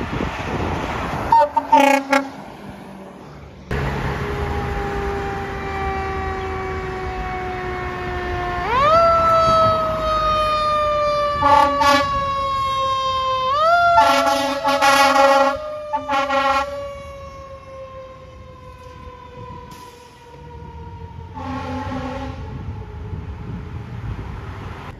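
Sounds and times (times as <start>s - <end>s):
fire engine siren wailing: 1.2s - 2.6s, 3.7s - 24.4s
loud horn blasts: 1.3s - 2.4s, 11.4s - 12.3s, 13.9s - 16.8s, 21.4s - 22.6s.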